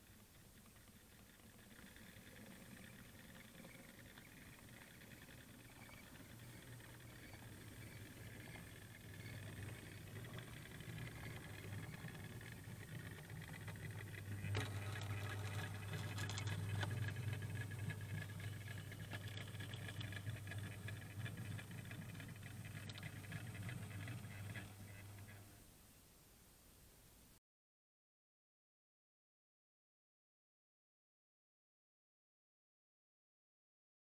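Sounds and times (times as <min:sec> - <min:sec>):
electric motor hum: 0:00.5 - 0:25.6.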